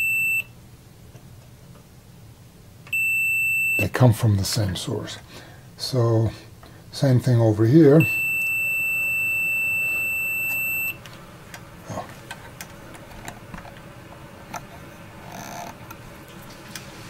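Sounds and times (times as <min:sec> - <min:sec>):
high-pitched multimeter beep: 0:00.0 - 0:00.5, 0:02.9 - 0:03.9, 0:08.0 - 0:11.0.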